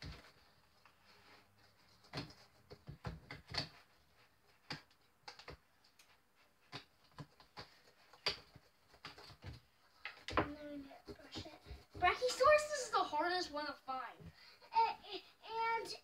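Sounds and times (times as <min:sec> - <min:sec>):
hand tools chipping plaster: 0:06.7 - 0:12.6.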